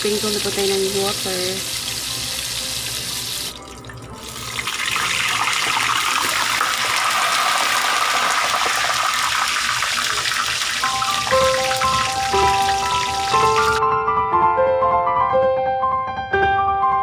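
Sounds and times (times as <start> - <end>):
meat deep-frying in hot oil: 0.0 - 13.8
mallet percussion music: 10.8 - 13.8.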